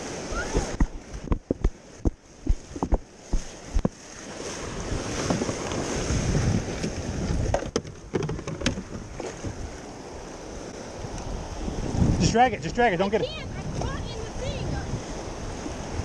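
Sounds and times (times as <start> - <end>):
surf washing in: 0.0 - 8.1, 8.8 - 16.0
wind buffeting microphone: 0.0 - 16.0
sharp knocks: 1.2 - 4.0.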